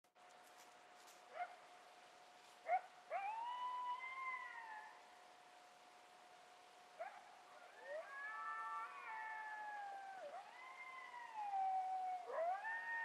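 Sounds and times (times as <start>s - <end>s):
coyote yipping and howling: 2.7s - 5.1s, 7.0s - 13.0s.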